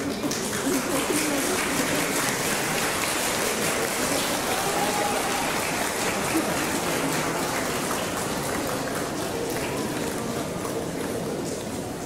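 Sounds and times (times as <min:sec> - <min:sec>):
faint voices: 0:00.0 - 0:12.0.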